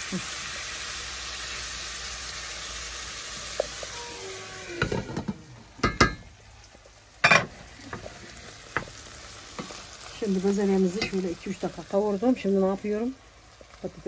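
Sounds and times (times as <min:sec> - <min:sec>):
food sizzling in a pan: 0:00.0 - 0:14.0
utensils knocking against a pan: 0:04.8 - 0:06.3.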